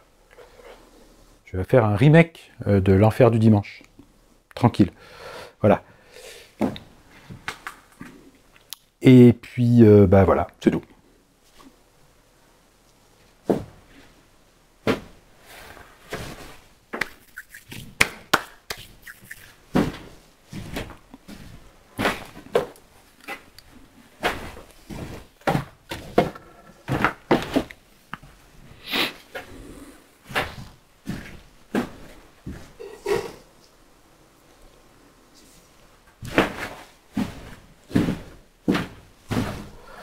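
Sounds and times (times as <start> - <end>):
knocks and clatter in workshop: 24.2 - 27.7.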